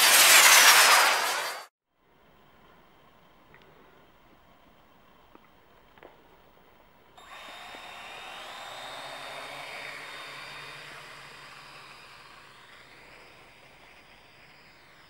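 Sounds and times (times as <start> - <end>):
drone propellers whining: 7.2 - 15.0.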